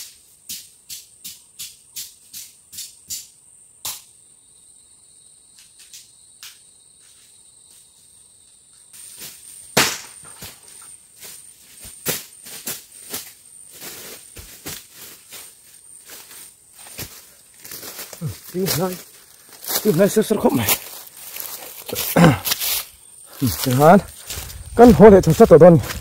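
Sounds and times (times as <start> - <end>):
high insect trill: 0.0 - 26.0
lower insect trill: 0.0 - 26.0
sharp cracks and snaps: 3.8 - 4.1, 9.8 - 10.5.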